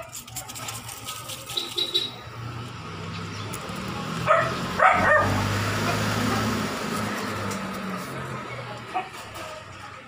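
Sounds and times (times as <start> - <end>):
low engine hum: 2.2 - 10.0
dog barking: 4.2 - 6.6, 8.9 - 9.2.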